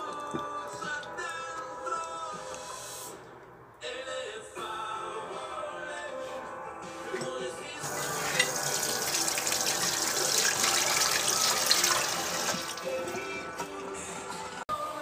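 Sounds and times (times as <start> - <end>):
background music: 0.0 - 15.0
water running from tap: 7.8 - 13.7.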